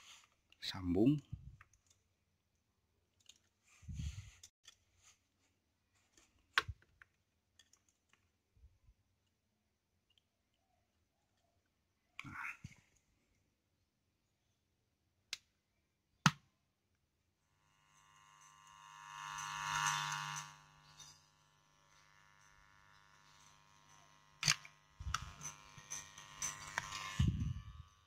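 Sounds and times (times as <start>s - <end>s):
speakers electrical buzz: 17.4s - 28.0s
sharp clicks: 24.0s - 27.2s.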